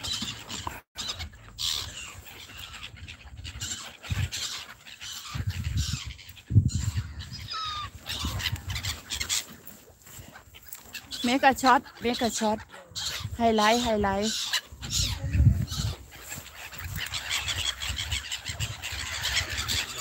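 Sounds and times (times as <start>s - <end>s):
gulls calling: 0.0s - 20.0s
wind buffeting microphone: 2.0s - 10.3s, 11.1s - 20.0s.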